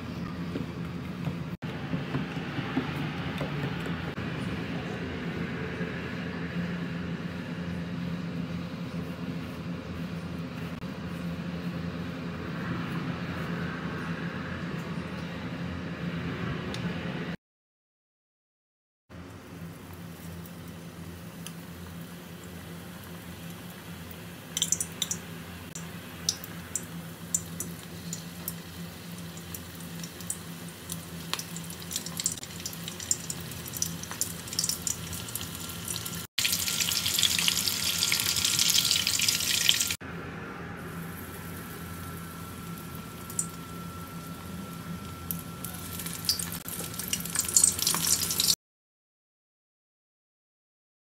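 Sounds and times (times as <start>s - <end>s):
shrimp sizzling in hot oil: 22.7s - 40.0s, 45.6s - 48.6s.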